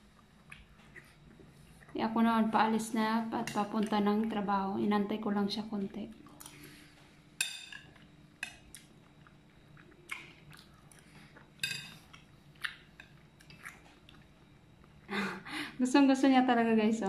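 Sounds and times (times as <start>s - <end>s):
faint chewing: 0.0s - 2.0s, 6.1s - 15.1s.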